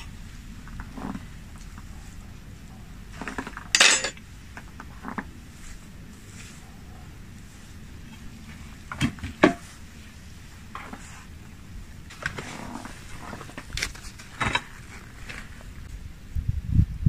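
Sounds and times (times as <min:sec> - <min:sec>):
metal skewers clicking and scraping: 0:03.2 - 0:04.2.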